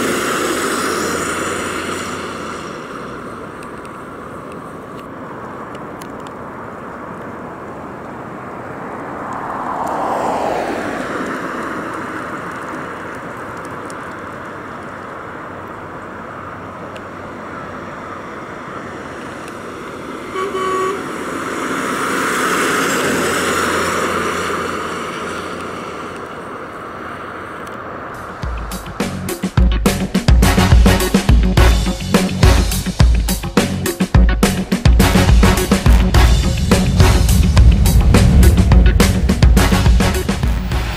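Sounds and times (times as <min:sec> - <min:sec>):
car driving past: 0:08.6 - 0:12.6, 0:19.8 - 0:28.5, 0:35.6 - 0:40.9
car horn toot: 0:20.3 - 0:21.2.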